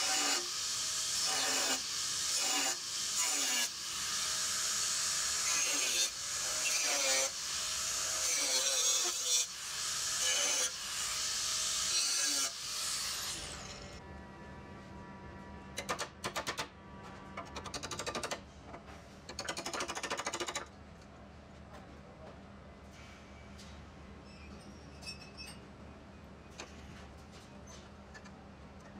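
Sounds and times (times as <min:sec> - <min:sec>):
angle grinder grinding steel: 0:00.0 - 0:14.0.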